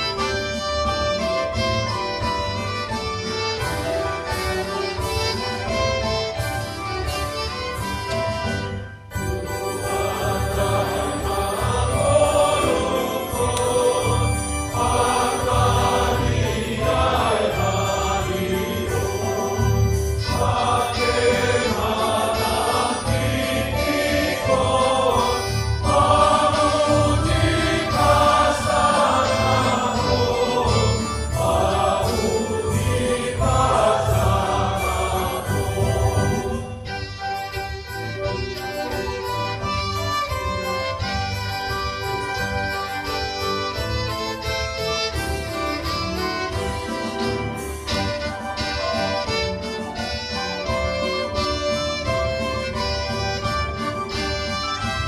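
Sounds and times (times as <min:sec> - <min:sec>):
instrumental accompaniment: 0:00.0 - 0:55.0
congregation singing a hymn: 0:09.7 - 0:37.0.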